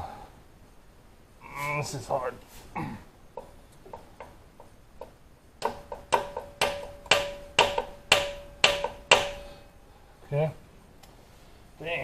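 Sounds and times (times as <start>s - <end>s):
faint steady tone: 0.0s - 12.0s
sharp evenly spaced clicks: 3.3s - 9.4s.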